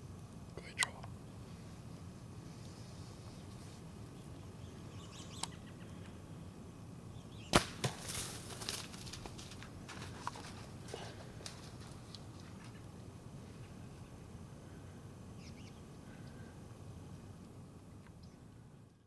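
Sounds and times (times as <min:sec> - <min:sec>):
arrow striking deer: 0:07.5 - 0:09.0
deer running through brush: 0:07.6 - 0:12.8.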